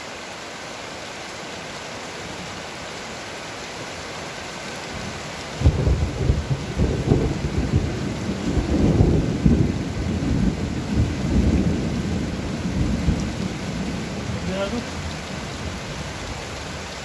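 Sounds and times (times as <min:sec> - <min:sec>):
steady rain: 0:00.0 - 0:17.0
thunder rumbling: 0:05.6 - 0:15.8.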